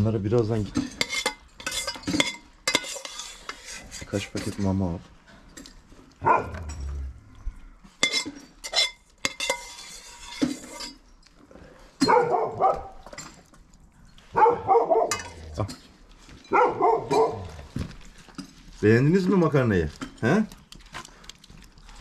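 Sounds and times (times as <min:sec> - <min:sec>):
metal ladle clinking against pot: 0:00.7 - 0:04.7, 0:08.0 - 0:11.0, 0:15.1 - 0:17.4
dogs barking: 0:06.2 - 0:06.8, 0:12.0 - 0:13.1, 0:14.3 - 0:15.5, 0:16.5 - 0:17.8.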